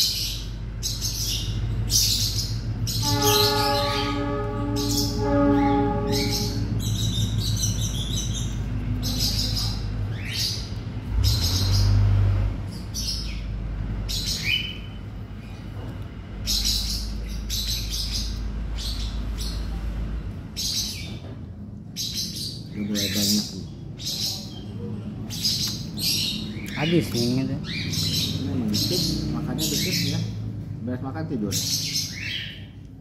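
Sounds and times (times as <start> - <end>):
low steady hum: 0.0 - 11.2
steady horn-like tone: 3.0 - 6.9.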